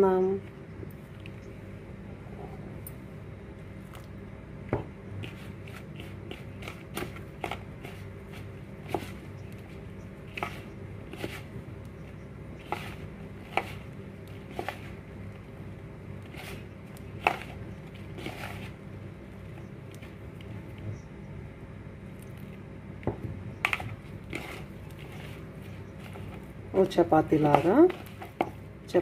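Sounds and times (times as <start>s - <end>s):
steady low hum: 0.0s - 29.0s
dough kneading clicks and scrapes: 5.1s - 21.1s, 23.2s - 29.0s.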